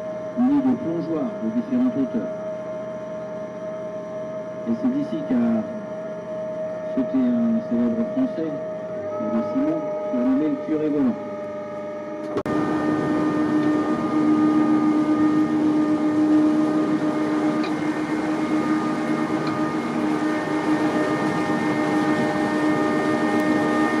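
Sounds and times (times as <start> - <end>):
boat engine droning: 0.0 - 24.0
rushing water noise: 12.5 - 24.0.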